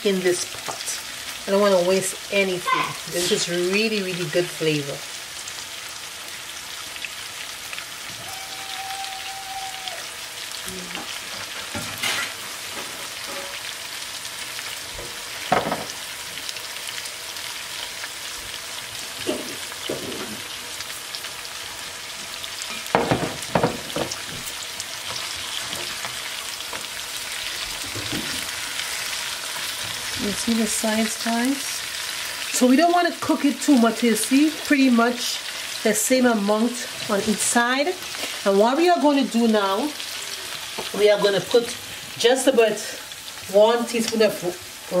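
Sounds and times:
fish sizzling in a frying pan: 0.0s - 45.0s.

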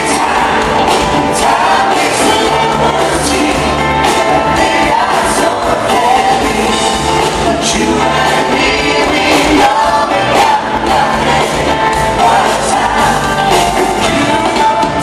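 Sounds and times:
backing vocals: 0.0s - 15.0s
drums: 0.0s - 15.0s
electric guitars: 0.0s - 15.0s
lead singer singing: 0.0s - 15.0s
live pop band playing: 0.0s - 15.0s.

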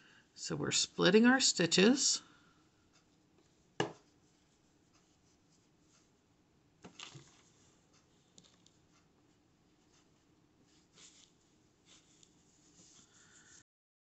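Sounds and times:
crochet hook scratching yarn: 7.5s - 13.6s.

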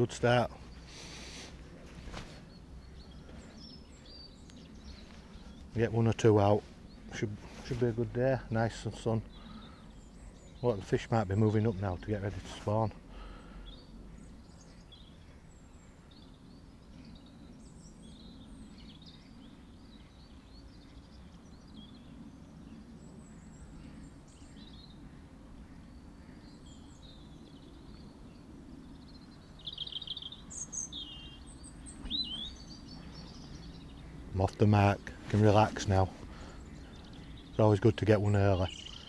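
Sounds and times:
small birds chirping: 0.0s - 39.0s
bird trill: 28.9s - 34.2s, 36.3s - 39.0s.

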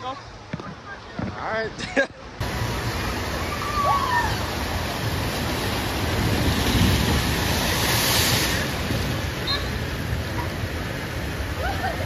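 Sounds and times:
water rushing on water slide: 2.4s - 12.0s
water spray: 4.3s - 10.1s.

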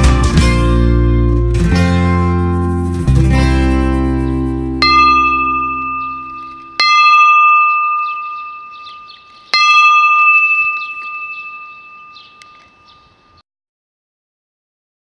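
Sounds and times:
metal bell ringing: 4.8s - 13.4s.

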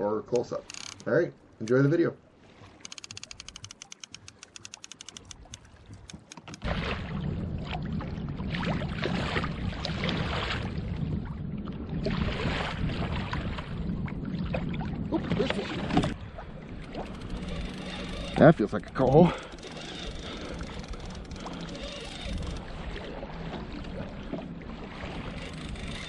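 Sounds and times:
fishing reel clicker ticking: 0.3s - 1.1s, 2.8s - 6.6s, 17.0s - 22.6s, 25.4s - 26.0s
water sloshing: 0.4s - 26.0s
wind noise: 5.2s - 22.9s.

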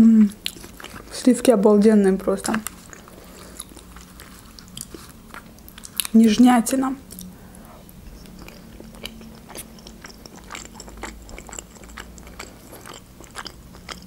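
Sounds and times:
person chewing food: 0.4s - 1.2s, 2.4s - 6.2s, 7.1s - 14.0s.

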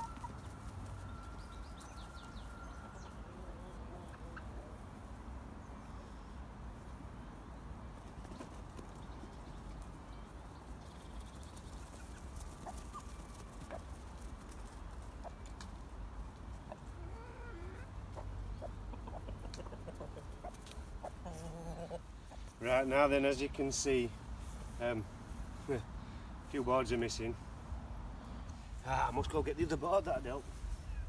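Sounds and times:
chickens clucking: 0.0s - 5.2s, 10.8s - 23.5s.

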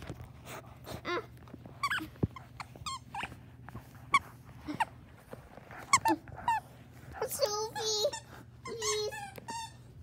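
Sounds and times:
dog whining and yipping: 1.1s - 4.9s.

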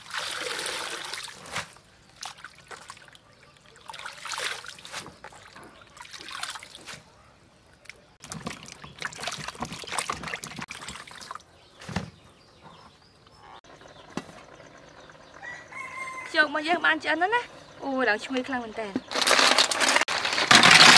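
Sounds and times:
water splashing and trickling: 0.0s - 11.7s.

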